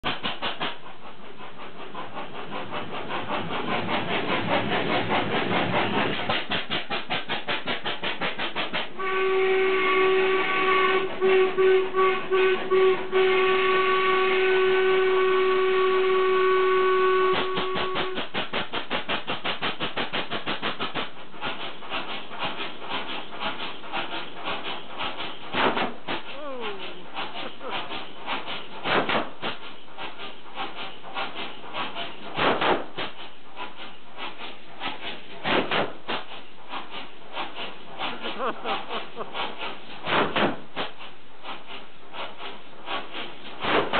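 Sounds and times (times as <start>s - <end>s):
stationary engine exhaust bangs: 28.4s - 29.6s, 30.8s - 33.2s, 38.0s - 41.0s.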